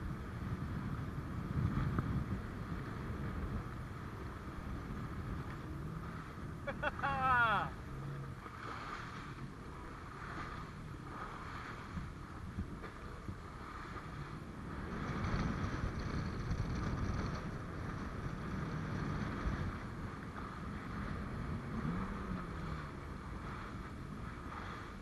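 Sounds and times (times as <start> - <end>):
wind buffeting microphone: 0.0 - 7.1, 7.7 - 25.0
jet ski engine rumbling: 0.0 - 25.0.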